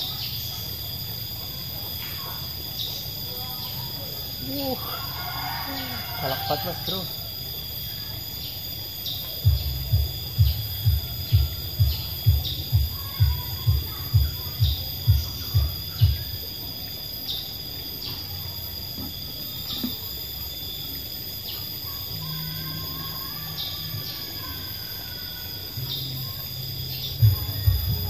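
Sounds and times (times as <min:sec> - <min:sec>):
insect chirring: 0:00.0 - 0:28.0
low rhythmic thudding: 0:09.4 - 0:16.5, 0:27.2 - 0:28.0.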